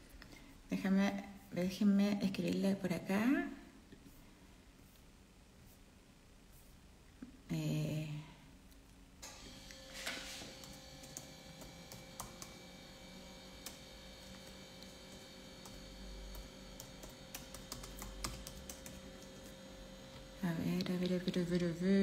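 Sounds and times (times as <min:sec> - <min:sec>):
steady electrical hum: 0:00.0 - 0:22.0
keyboard typing clicks: 0:15.6 - 0:19.3.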